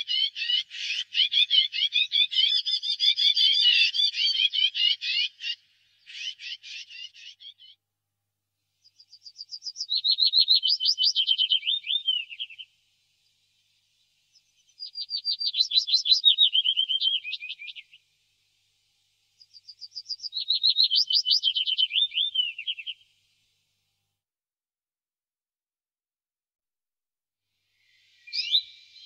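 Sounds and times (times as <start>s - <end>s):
warbler singing: 0.0s - 7.8s, 8.8s - 13.4s, 14.3s - 18.0s, 19.4s - 23.0s, 27.8s - 29.0s.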